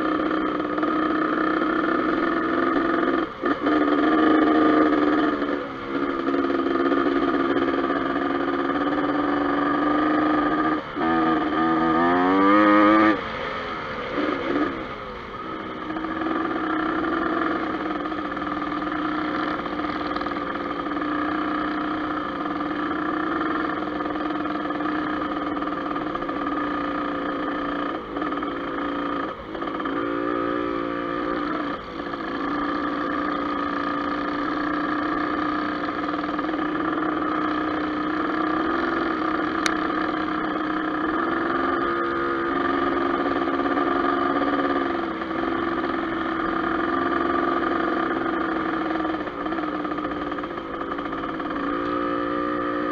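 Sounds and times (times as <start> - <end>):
dirt bike engine revving: 0.0 - 52.9.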